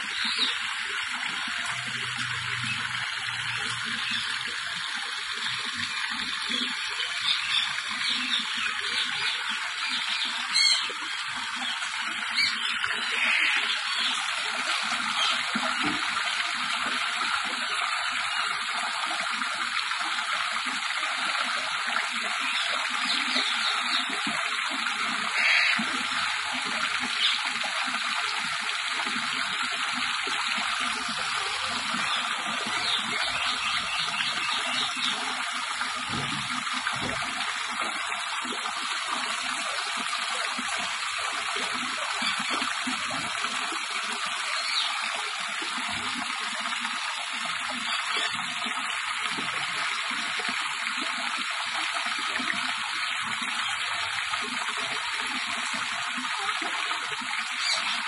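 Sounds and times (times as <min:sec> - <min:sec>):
water running: 0:00.0 - 0:58.0.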